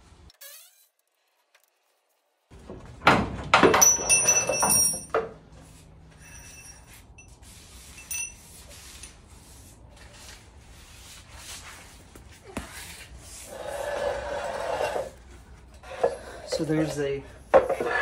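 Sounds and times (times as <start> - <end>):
metal clink: 3.6 - 5.3, 8.0 - 8.4
faint rubbing of tools: 12.8 - 18.0.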